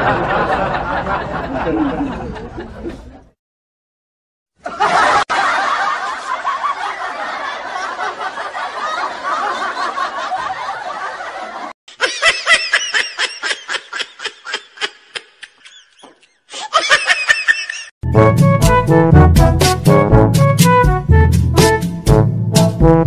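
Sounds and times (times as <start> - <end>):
overlapping laughter: 0.0 - 3.3, 4.6 - 18.0.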